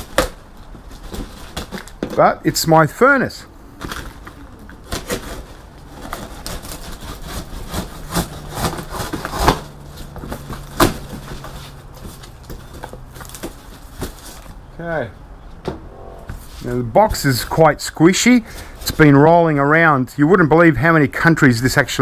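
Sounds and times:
knife slicing packing tape: 0:04.9 - 0:09.7.

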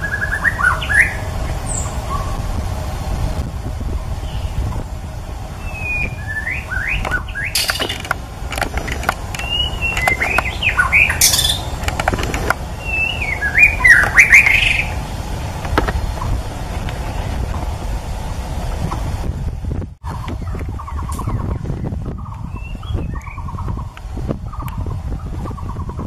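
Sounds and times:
bird singing whistled phrases: 0:00.0 - 0:02.4, 0:05.6 - 0:07.6, 0:09.4 - 0:11.7, 0:12.8 - 0:15.0, 0:22.4 - 0:23.5
sharp clicks: 0:07.0 - 0:10.6, 0:11.2 - 0:12.6.

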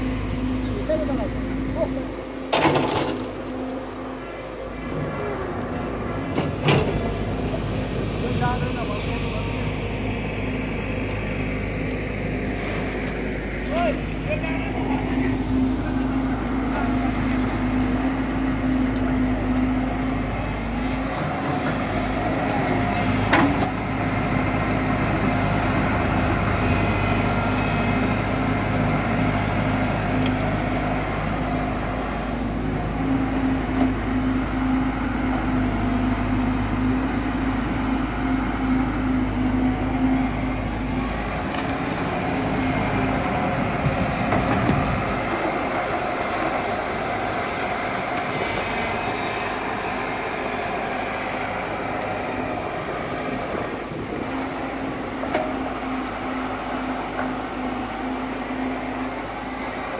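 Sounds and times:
excavator diesel engine running: 0:00.0 - 0:59.9.

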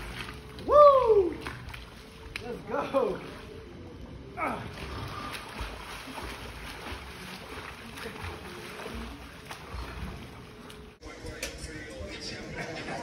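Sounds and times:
swimming strokes splashing: 0:00.0 - 0:03.8, 0:04.4 - 0:11.0.

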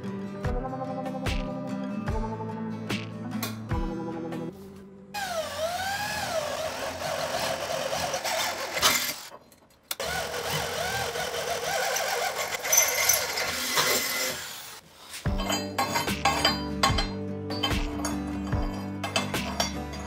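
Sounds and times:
electric drill boring through steel: 0:05.2 - 0:09.3, 0:10.0 - 0:14.8.

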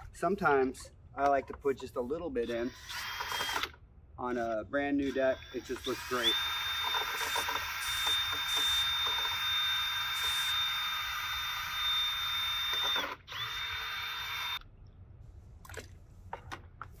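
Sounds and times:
cordless drill motor whining: 0:02.4 - 0:03.8, 0:05.0 - 0:14.6.

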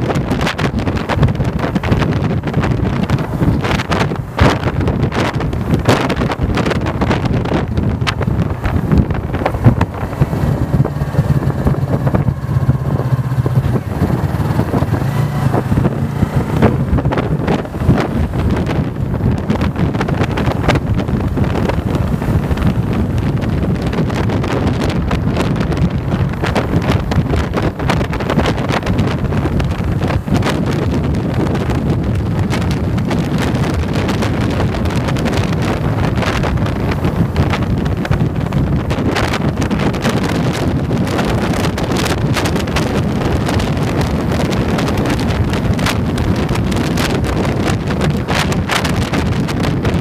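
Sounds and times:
motorcycle engine running: 0:00.0 - 0:50.0
wind buffeting microphone: 0:00.0 - 0:50.0.

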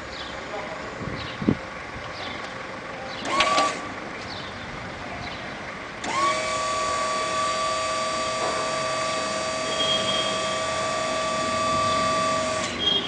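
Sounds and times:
electric motor whine: 0:06.0 - 0:12.8.

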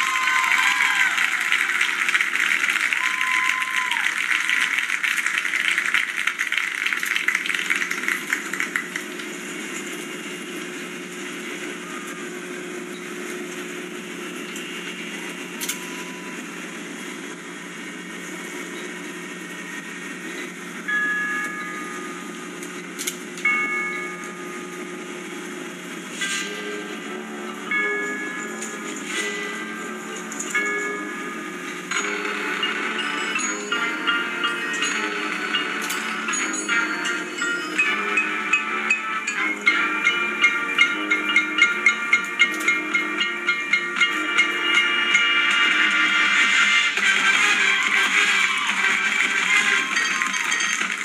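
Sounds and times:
crowd applauding: 0:00.0 - 0:09.6, 0:45.4 - 0:51.0
marching band brass chords: 0:35.0 - 0:51.0.

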